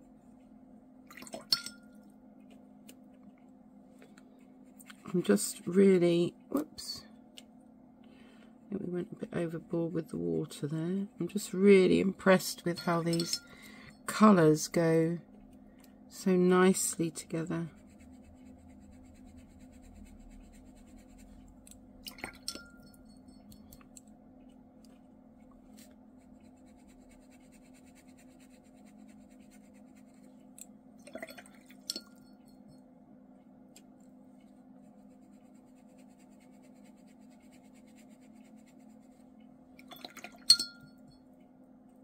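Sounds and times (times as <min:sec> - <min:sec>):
faint steady hum: 0:00.0 - 0:42.0
light clinks and taps: 0:22.1 - 0:24.1, 0:39.8 - 0:41.5.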